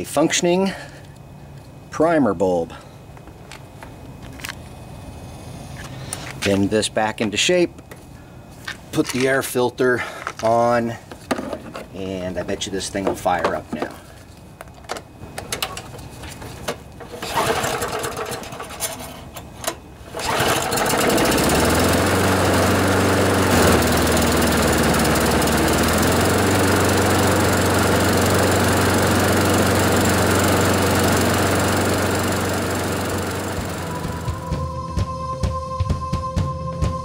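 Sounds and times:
lawnmower engine running: 15.4 - 34.6.

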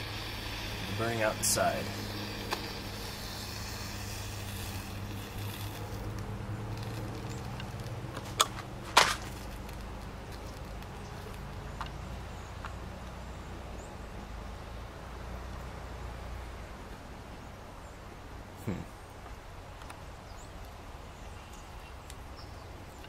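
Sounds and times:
rocket motor hissing: 0.0 - 11.6
sharp pops: 0.0 - 12.0
steady low hum: 0.0 - 23.0.

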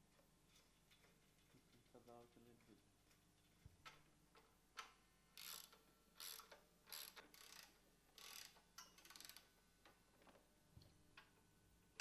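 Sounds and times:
faint ratchet wrench clicking: 4.4 - 10.0.

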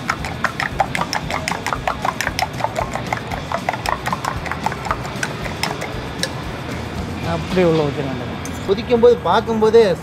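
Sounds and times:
metal spoon clinking in bowl: 0.0 - 6.5.

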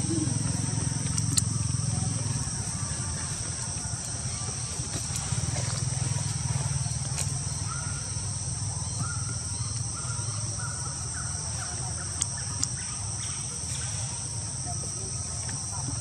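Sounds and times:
faint pitched calls: 0.0 - 16.0
high-pitched insect drone: 0.0 - 16.0
low steady hum: 0.0 - 16.0
sharp clicks: 1.0 - 1.6, 12.0 - 12.8.

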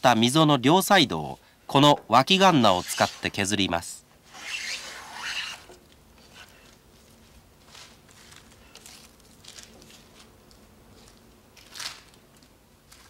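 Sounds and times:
plane blade shaving wood: 2.7 - 3.3.

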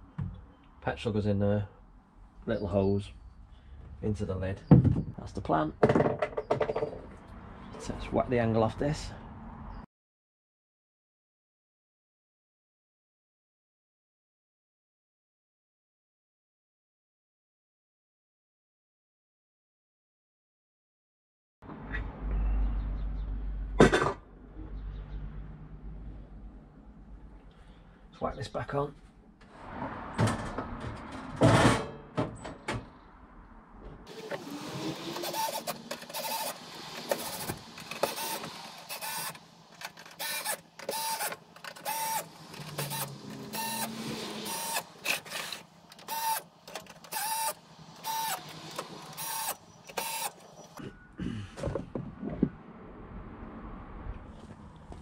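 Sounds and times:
power screwdriver whining: 34.1 - 50.8.

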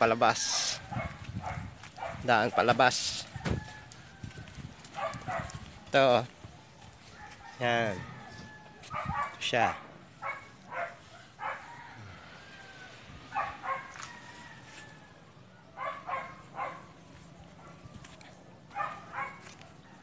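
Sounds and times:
dog barking: 0.4 - 2.8, 4.9 - 5.7, 8.8 - 11.9, 13.3 - 14.2, 15.6 - 20.0.

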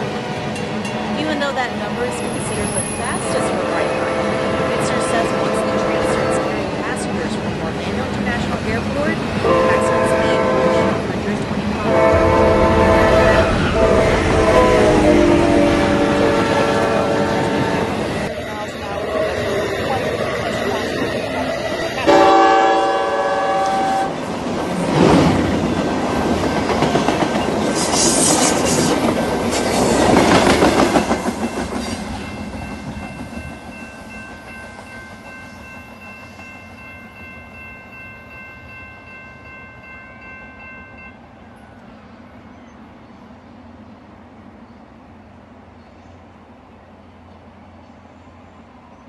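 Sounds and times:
crossing warning bell: 0.5 - 24.2, 31.0 - 41.8
train horn chord: 1.2 - 7.3, 9.4 - 19.7, 22.0 - 24.2
train wheels clattering on rails: 23.6 - 35.6.

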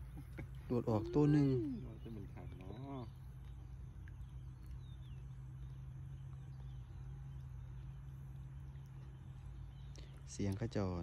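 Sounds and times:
faint bird chirps: 0.0 - 11.0
steady low hum: 0.0 - 11.0.

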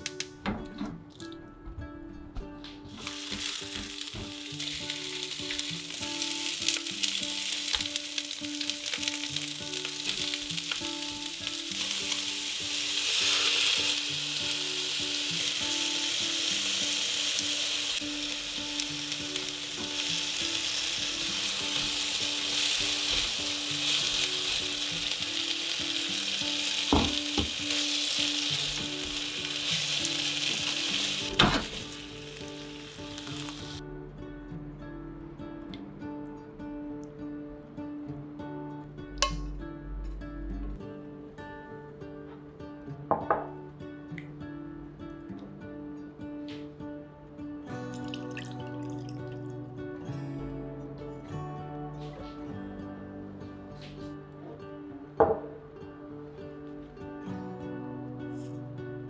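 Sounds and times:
food sizzling in a frying pan: 3.0 - 33.8.

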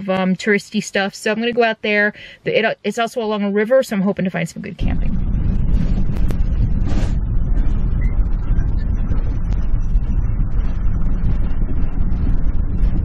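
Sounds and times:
road and engine rumble in cab: 4.8 - 13.0.

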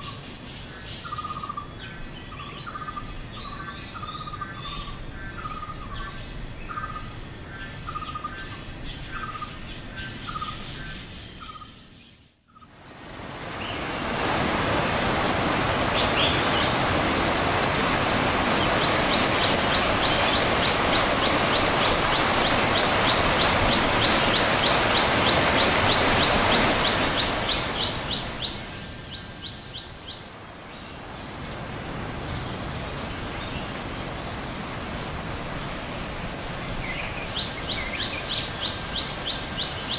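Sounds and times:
forest ambience: 0.0 - 39.9
insect chirping: 0.0 - 39.9
small stream rushing: 12.7 - 39.9.

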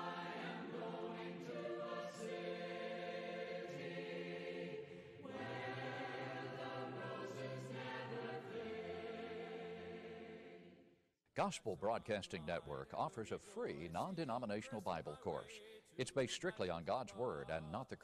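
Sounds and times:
choir singing a slow hymn: 0.0 - 10.9.

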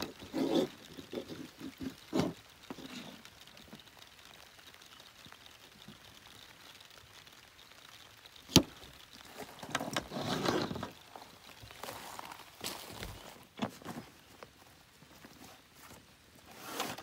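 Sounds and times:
hose rustling and sliding: 0.0 - 3.4, 9.2 - 17.0.

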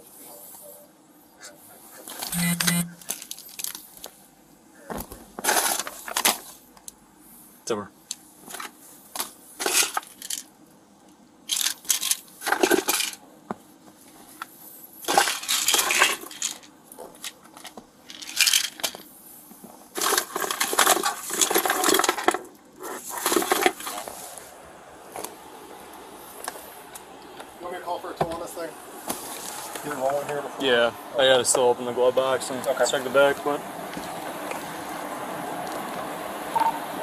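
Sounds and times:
objects rustling and clinking: 5.0 - 6.6, 8.4 - 10.5, 11.5 - 13.2, 15.0 - 24.4.

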